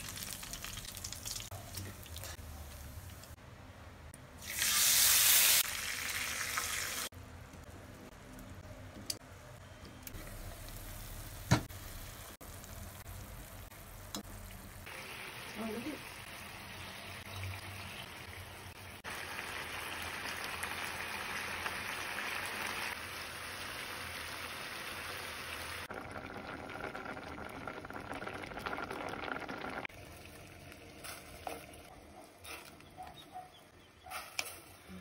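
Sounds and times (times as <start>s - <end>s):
food sizzling in a frying pan: 0.0s - 2.3s, 4.4s - 7.1s, 10.2s - 31.7s.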